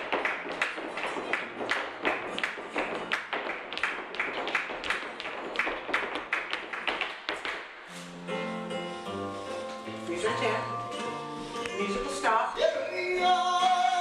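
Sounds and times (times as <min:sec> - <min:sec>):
flamenco dance taps: 0:00.0 - 0:07.8.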